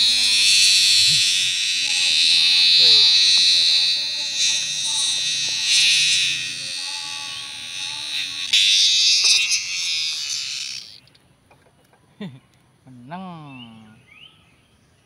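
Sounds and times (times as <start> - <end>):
cicada buzzing call: 0.0 - 11.2.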